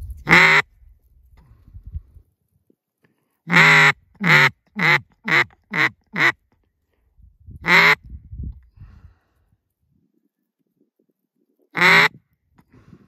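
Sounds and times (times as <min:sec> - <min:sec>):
duck call quacks: 0:00.3 - 0:00.6, 0:03.5 - 0:06.4, 0:07.6 - 0:08.0, 0:11.8 - 0:12.2.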